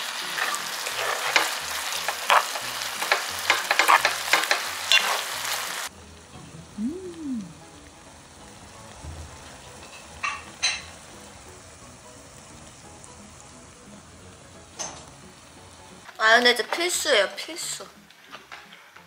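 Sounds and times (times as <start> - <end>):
utensils clicking on pan: 0.0 - 5.9
octopus sizzling in a pan: 0.0 - 18.7.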